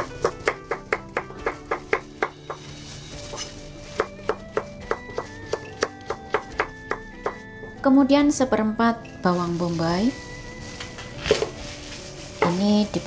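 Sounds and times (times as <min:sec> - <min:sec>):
background music: 0:00.0 - 0:13.0.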